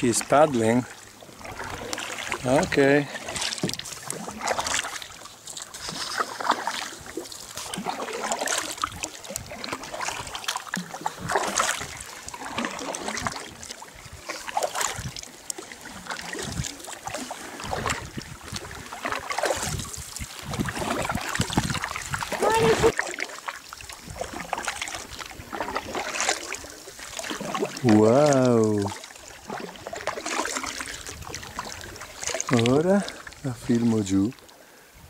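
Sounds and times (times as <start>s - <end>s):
kayak paddle splashing: 0.0s - 34.9s.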